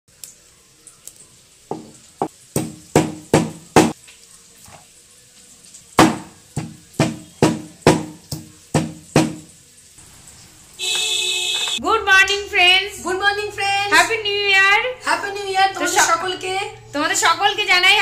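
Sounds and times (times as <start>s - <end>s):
stone pestle knocking on stone: 1.7s - 2.0s, 2.6s - 4.0s, 6.0s - 9.5s.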